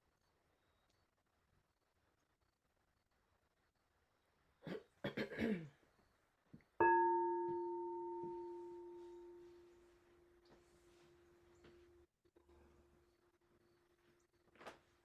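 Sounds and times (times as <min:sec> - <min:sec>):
person clearing throat: 0:04.7 - 0:05.8
singing bowl ringing: 0:06.8 - 0:10.4.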